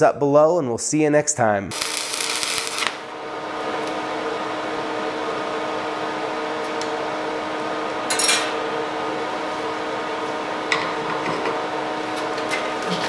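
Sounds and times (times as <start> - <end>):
steady hum: 1.6 - 13.0
metal rod clattering on steel table: 8.1 - 8.5.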